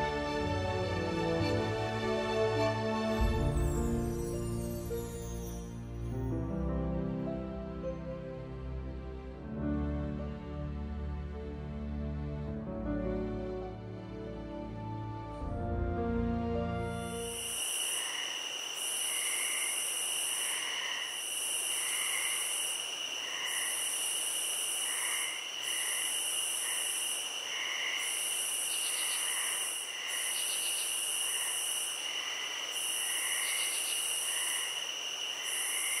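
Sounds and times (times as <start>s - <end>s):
high-pitched insect trills: 17.0s - 36.0s
soft insect chirps: 17.1s - 36.0s
pulsing insect buzz: 17.2s - 36.0s.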